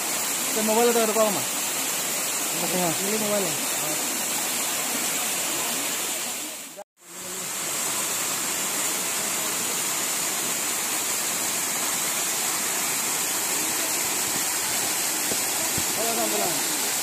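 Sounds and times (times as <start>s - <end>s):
waterfall rushing over rocks: 0.0s - 17.0s.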